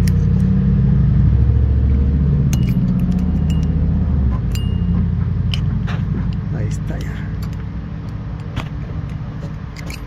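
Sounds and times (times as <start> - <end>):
engine humming: 0.0 - 10.0
metal clinks of wrenches: 2.5 - 7.7, 9.7 - 10.0.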